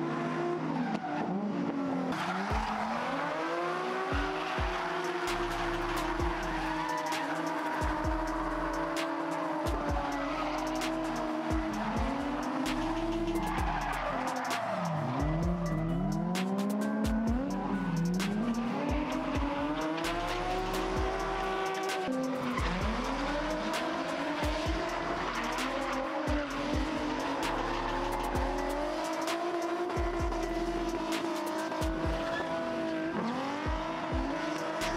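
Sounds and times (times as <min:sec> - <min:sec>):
car engines revving: 0:00.0 - 0:34.9
tyres squealing: 0:04.1 - 0:16.3.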